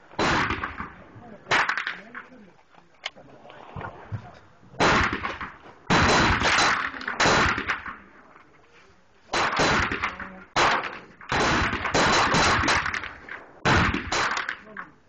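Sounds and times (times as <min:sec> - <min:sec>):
pistol shots echoing: 0:00.1 - 0:02.1, 0:04.8 - 0:08.1, 0:09.3 - 0:14.7.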